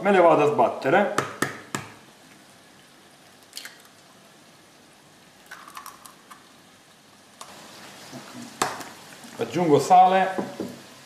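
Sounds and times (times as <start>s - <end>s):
eggshells cracking: 3.4s - 4.0s, 5.4s - 6.4s.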